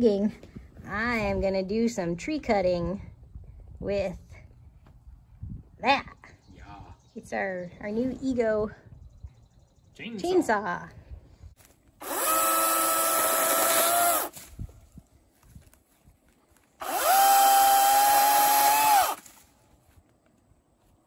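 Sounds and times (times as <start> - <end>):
battery chainsaw whining: 12.0 - 14.4, 16.8 - 19.3.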